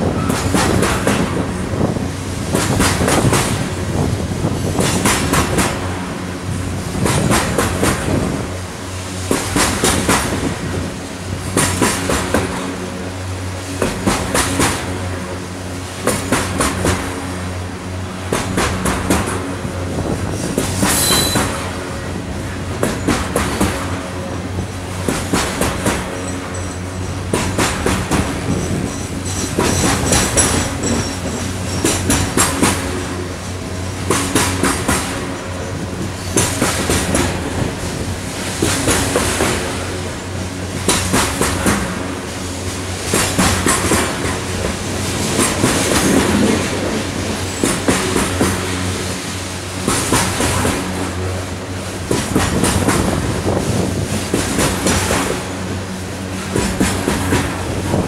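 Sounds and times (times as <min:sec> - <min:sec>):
train rolling rumble: 0:00.0 - 0:58.0
train wheels clacking on rails: 0:00.0 - 0:58.0
faint high wheel squeal: 0:20.4 - 0:21.6, 0:26.1 - 0:27.2, 0:28.4 - 0:32.2.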